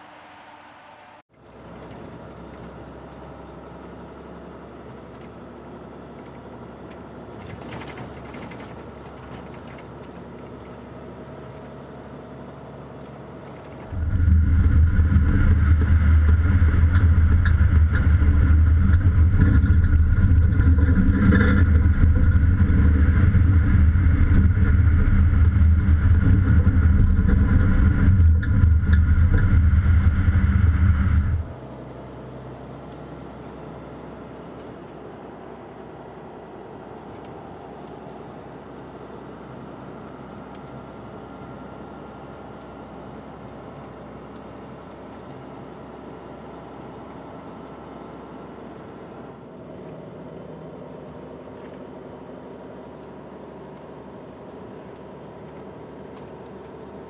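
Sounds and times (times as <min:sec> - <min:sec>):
road noise: 0:00.0 - 0:57.0
truck engine droning: 0:00.0 - 0:57.0.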